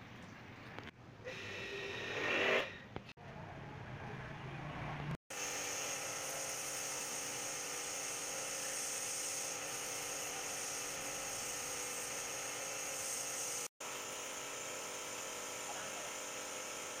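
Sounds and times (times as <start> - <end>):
pressure washer motor whining: 13.8 - 17.0.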